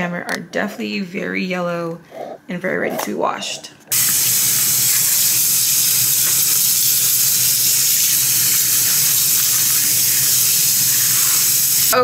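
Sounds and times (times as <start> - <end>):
tap water running: 3.9 - 12.0.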